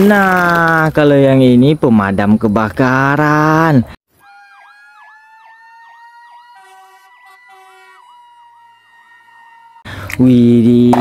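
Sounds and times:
electronic siren yelping: 0:04.1 - 0:09.9
steady siren tone: 0:04.1 - 0:09.9.

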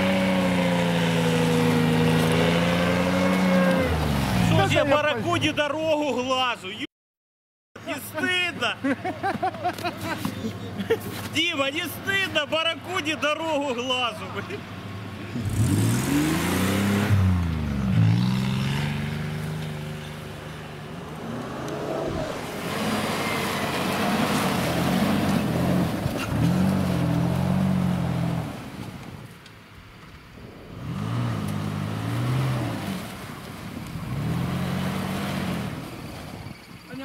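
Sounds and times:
suv engine revving: 0:00.0 - 0:04.8, 0:15.2 - 0:29.0, 0:30.4 - 0:36.4
wheels churning snow: 0:00.0 - 0:05.0, 0:21.0 - 0:29.4, 0:30.4 - 0:37.0.

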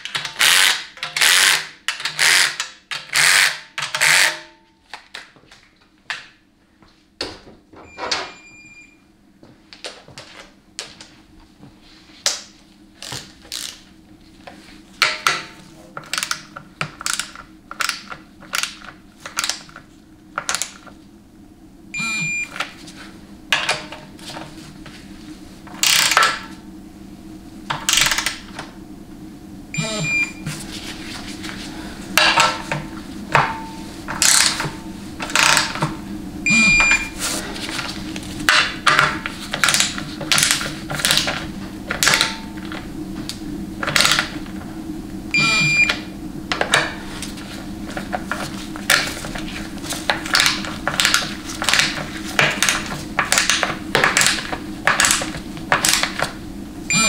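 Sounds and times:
hand ratchet clicking: 0:00.0 - 0:04.4
low steady hum: 0:04.4 - 0:57.0
brief high tones: 0:29.8 - 0:30.5, 0:45.4 - 0:45.9.

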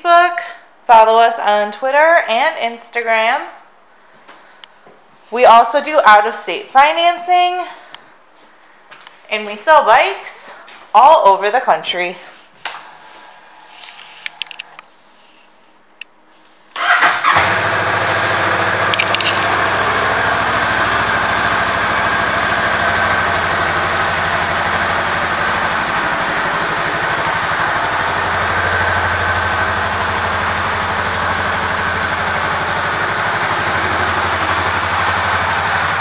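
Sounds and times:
motorcycle engine starting and idling: 0:16.7 - 0:36.0.

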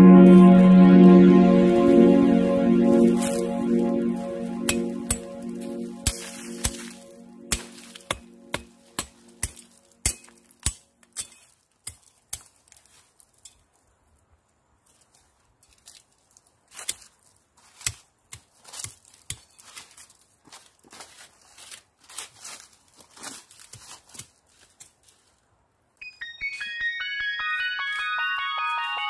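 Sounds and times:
background music: 0:00.0 - 0:10.8, 0:26.0 - 0:29.0
machete chopping into stony soil: 0:07.5 - 0:12.6, 0:17.7 - 0:19.6.

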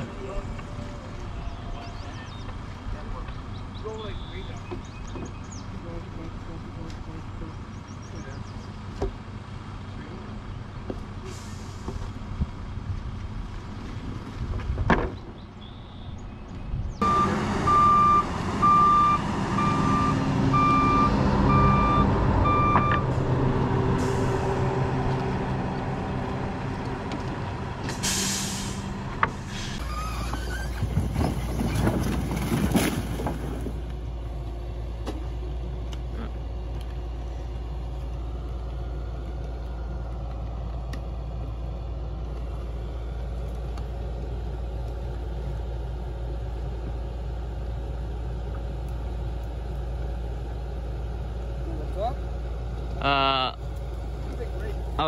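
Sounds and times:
truck diesel engine running: 0:00.0 - 0:14.6, 0:16.9 - 0:55.0
reversing alarm beeping: 0:17.0 - 0:23.2
air hiss: 0:27.9 - 0:28.8.

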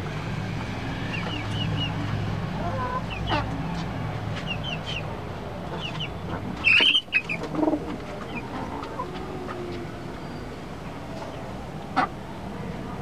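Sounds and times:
chickens chirping and clucking: 0:01.0 - 0:12.3
chicken squawk: 0:05.8 - 0:07.8.

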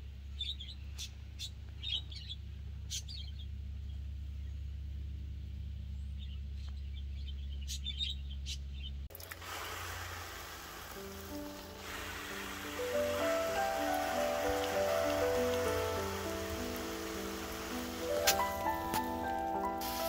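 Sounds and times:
small birds chirping: 0:00.0 - 0:09.1, 0:11.3 - 0:19.9
low steady rumble: 0:00.0 - 0:09.2
water spraying over leaves: 0:09.1 - 0:20.0
soft music notes: 0:11.1 - 0:20.0.

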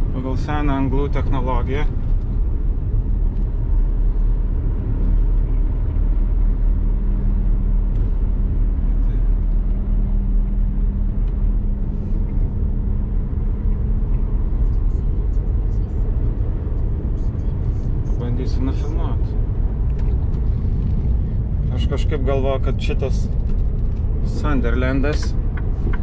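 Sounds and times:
lorry diesel engine rumble: 0:00.0 - 0:26.0.

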